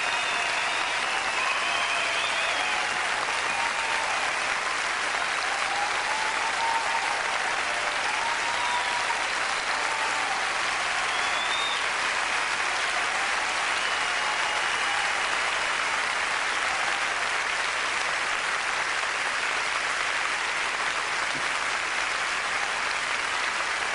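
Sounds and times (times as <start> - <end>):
high whistles in crowd: 0.0 - 4.0, 11.0 - 12.1, 13.6 - 15.4
audience applauding: 0.0 - 23.9.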